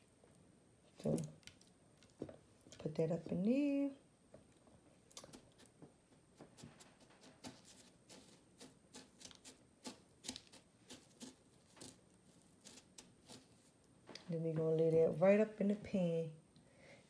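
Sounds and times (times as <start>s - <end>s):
crumbs crackling and crunching: 6.4s - 14.9s.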